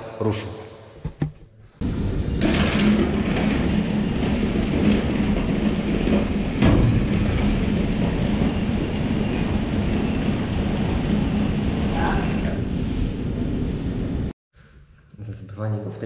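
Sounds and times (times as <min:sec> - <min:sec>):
loud mechanical knock: 0:02.4 - 0:03.7, 0:06.1 - 0:07.6.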